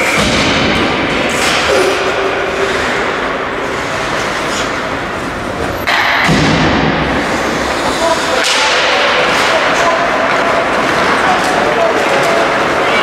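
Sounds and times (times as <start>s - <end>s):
arena noise: 0.0s - 13.0s
skates scraping ice: 1.1s - 5.8s, 7.0s - 13.0s
sticks slapping puck: 5.8s - 13.0s.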